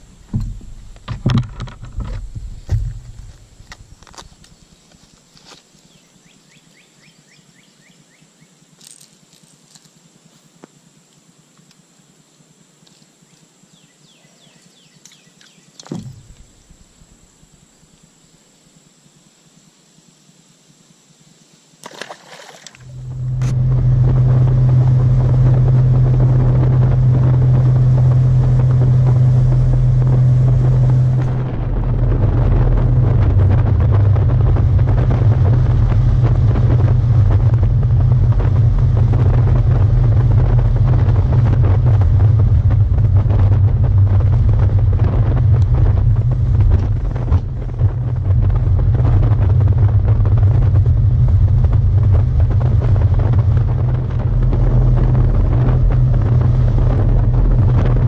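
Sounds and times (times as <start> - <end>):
outboard motor drone: 0.0 - 4.2, 14.8 - 17.4, 21.8 - 58.0
wind buffeting microphone: 0.0 - 4.6, 15.9 - 17.3, 22.8 - 58.0.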